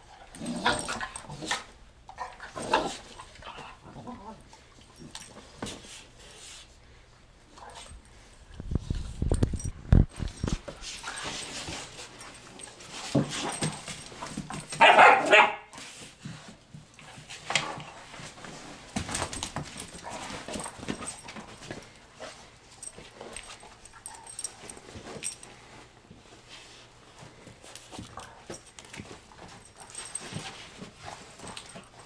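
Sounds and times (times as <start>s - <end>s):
dogs scuffling: 7.6s - 32.0s
dogs barking: 14.8s - 15.7s
dogs yipping: 14.8s - 15.7s.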